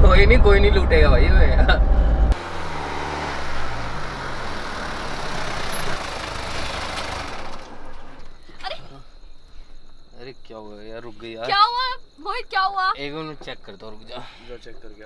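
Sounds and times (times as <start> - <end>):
car engine running: 0.0 - 8.5
tyre and road noise: 0.0 - 8.9.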